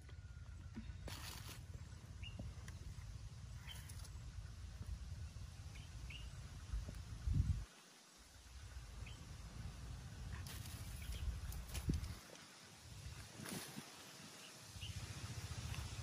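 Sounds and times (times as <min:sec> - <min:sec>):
low riverside rumble: 0:00.0 - 0:07.7, 0:08.3 - 0:16.0
bird chirps: 0:02.1 - 0:02.9, 0:03.6 - 0:04.3, 0:05.6 - 0:06.4.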